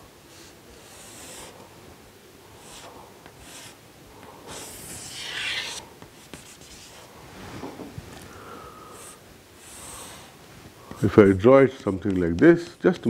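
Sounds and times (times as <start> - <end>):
chalk scratching on chalkboard: 0.8 - 1.5, 2.6 - 3.8, 4.5 - 7.1.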